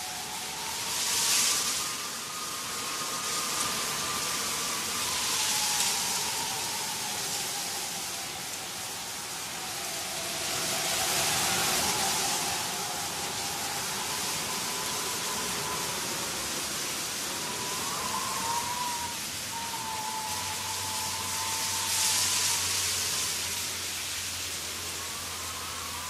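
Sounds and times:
faint wavering high tone: 0.0 - 26.0
steady rushing hiss: 0.0 - 26.0.

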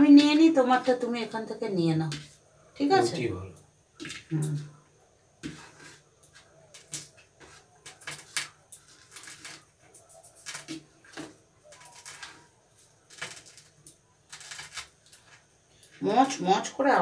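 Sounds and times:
fingers squishing rice: 5.4 - 15.5.

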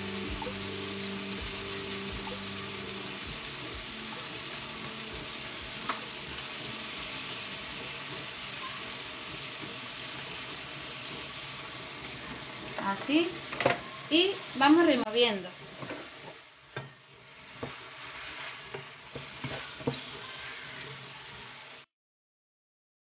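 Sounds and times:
seafood sizzling in frying pan: 0.0 - 21.8.

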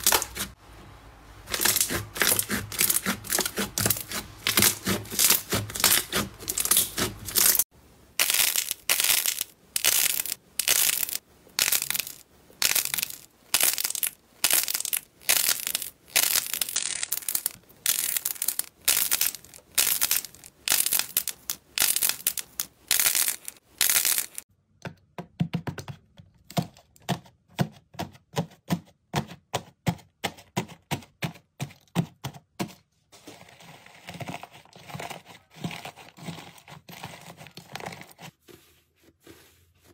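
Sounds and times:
crunchy slime squishing: 0.0 - 0.6, 1.4 - 24.4.

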